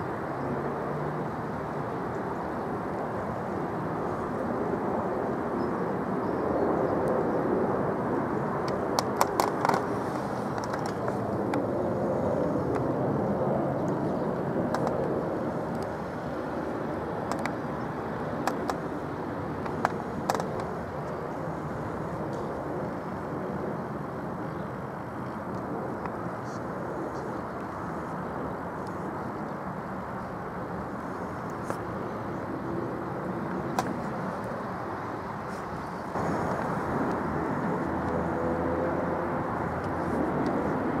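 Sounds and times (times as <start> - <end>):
transport rumble: 33.6 - 41.0.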